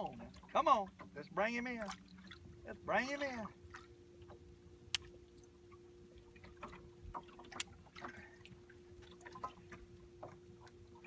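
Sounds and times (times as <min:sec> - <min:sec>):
faint steady hum: 0:00.0 - 0:11.0
water lapping and dripping: 0:00.0 - 0:11.0.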